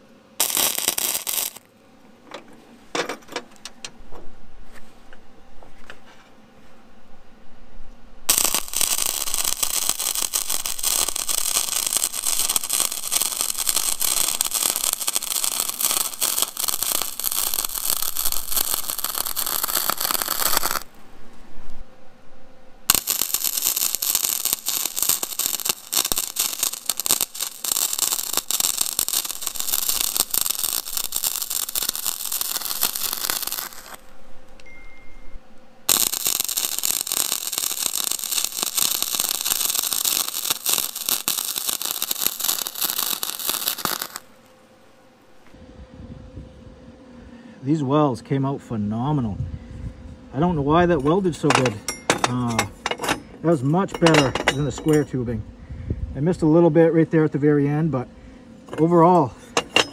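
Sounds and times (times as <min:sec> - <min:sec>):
welding arc crackling: 0:00.0 - 0:01.7, 0:08.3 - 0:21.0, 0:22.9 - 0:34.1, 0:35.8 - 0:44.4.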